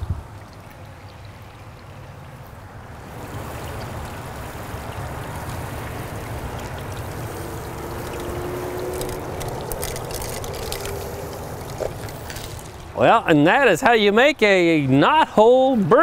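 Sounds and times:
seeds trickling onto wood: 5.2s - 12.9s.

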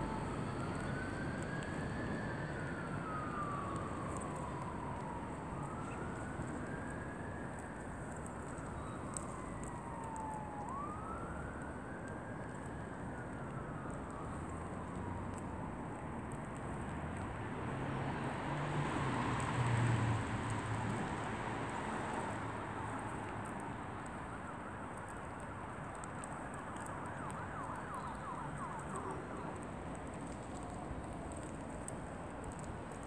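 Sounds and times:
siren wailing: 0.0s - 16.0s, 24.1s - 32.6s
traffic noise: 0.0s - 33.0s.

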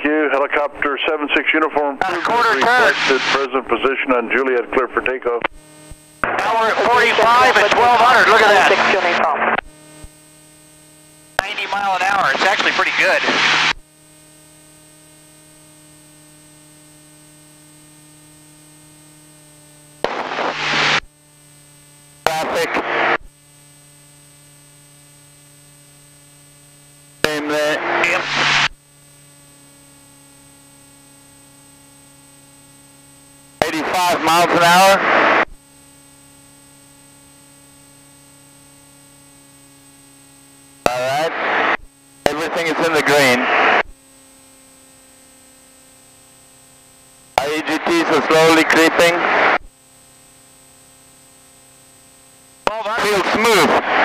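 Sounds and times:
intercom hum: 0.0s - 54.0s
static rushing noise: 2.0s - 3.6s, 5.5s - 21.1s, 21.8s - 23.3s, 25.2s - 29.4s, 33.6s - 35.6s, 40.8s - 43.9s, 47.3s - 49.7s, 52.6s - 54.0s.

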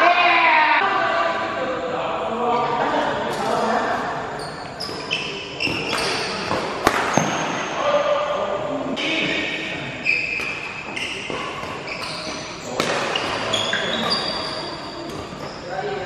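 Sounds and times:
shoes squeaking on court: 3.3s - 7.8s, 10.0s - 16.0s
rackets striking shuttlecock: 5.6s - 7.6s, 10.4s - 15.5s.

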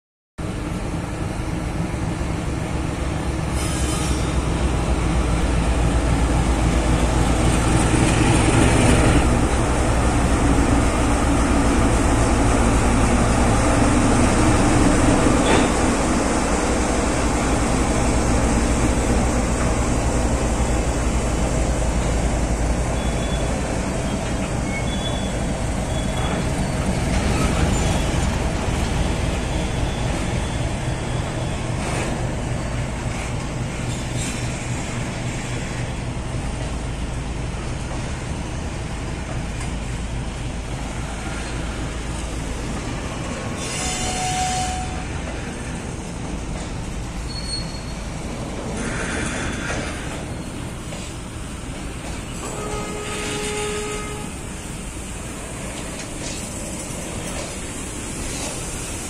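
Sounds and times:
diesel locomotive engine drone: 0.4s - 59.0s
train wagons clattering on rails: 14.2s - 17.0s, 21.4s - 59.0s
high wheel squeals: 24.1s - 28.3s, 47.2s - 48.1s.

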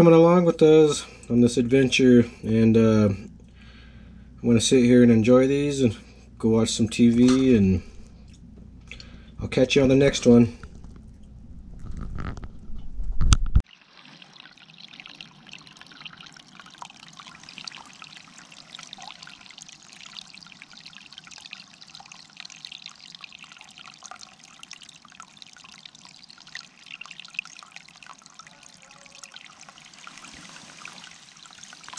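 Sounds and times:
water trickling and splashing: 6.7s - 11.9s, 13.6s - 31.9s.

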